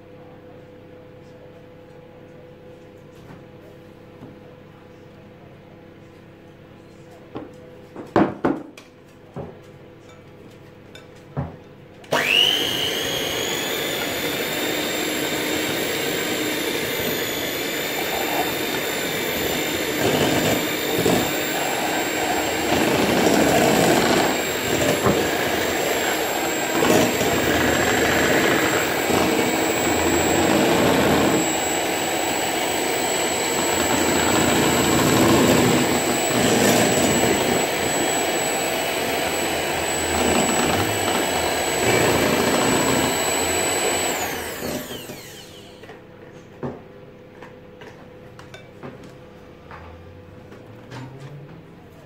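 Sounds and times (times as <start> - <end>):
electric hand mixer whining: 12.1 - 46.0
beaters churning cake mixture: 12.1 - 46.1.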